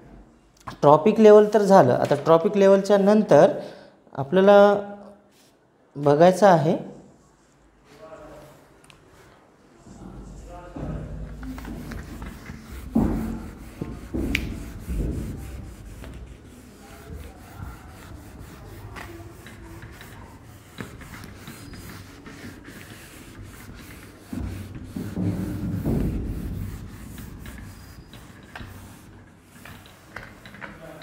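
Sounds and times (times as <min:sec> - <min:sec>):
duster rubbing a board: 0:09.8 - 0:31.0.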